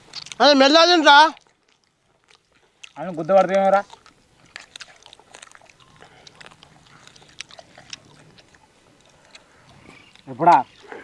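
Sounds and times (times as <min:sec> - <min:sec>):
people chewing and biting: 0:00.0 - 0:11.0.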